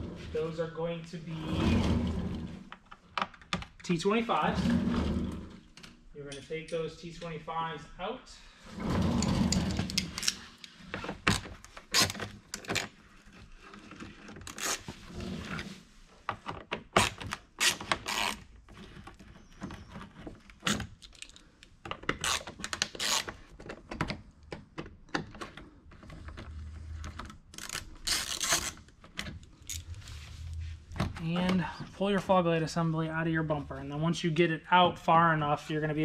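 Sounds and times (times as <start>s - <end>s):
screwdriver clicking and scraping: 9.5s - 12.9s.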